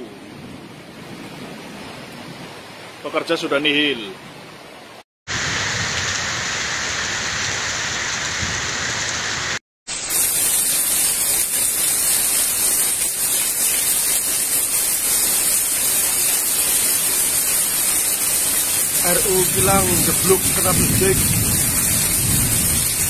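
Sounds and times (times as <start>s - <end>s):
steady rain falling: 5.3s - 23.0s.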